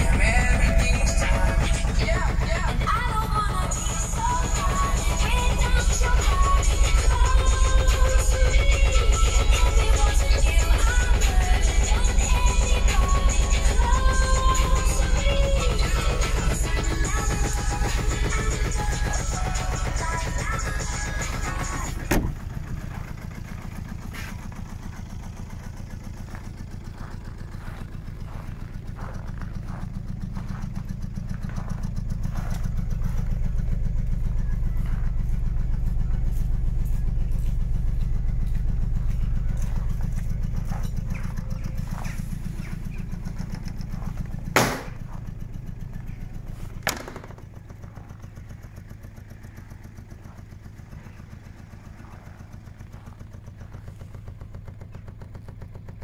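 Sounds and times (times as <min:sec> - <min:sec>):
small diesel engine idling: 0:00.0 - 0:56.0
cargo doors slamming shut: 0:22.0 - 0:22.5, 0:44.5 - 0:45.1, 0:46.8 - 0:47.4.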